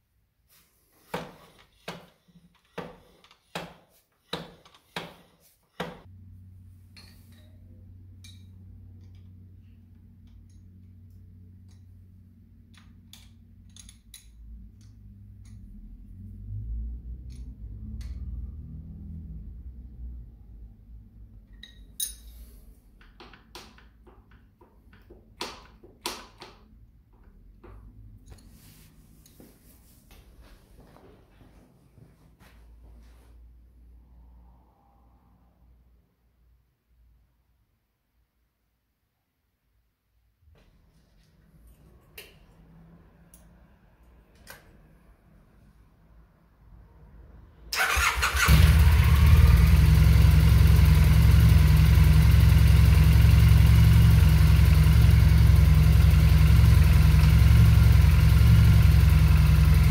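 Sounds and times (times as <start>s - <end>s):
spanner clinking against bolts: 21.5s - 22.5s.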